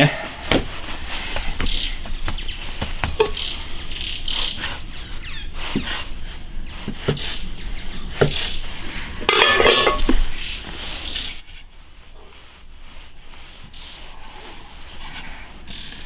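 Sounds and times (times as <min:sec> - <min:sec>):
small birds chirping: 0:00.9 - 0:09.2, 0:09.9 - 0:11.4, 0:13.4 - 0:16.0
cleaver knocking on wood: 0:01.4 - 0:03.5
scraping sound: 0:08.7 - 0:11.4.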